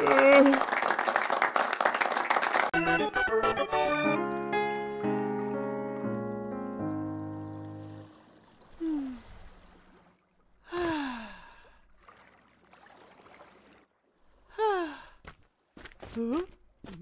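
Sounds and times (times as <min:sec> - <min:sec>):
piano note: 0:02.8 - 0:08.1
faint sea wash: 0:04.6 - 0:15.2.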